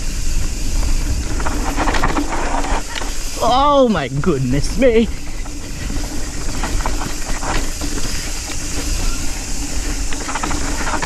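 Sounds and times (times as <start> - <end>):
tyres rushing on dirt: 0.0 - 11.0
wind on microphone: 0.0 - 11.0
bike knocks and rattles: 4.8 - 11.0.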